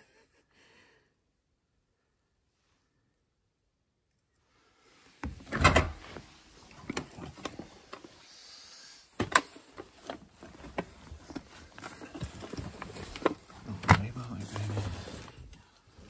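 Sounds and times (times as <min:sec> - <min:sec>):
objects knocking and scraping: 0:09.2 - 0:15.6.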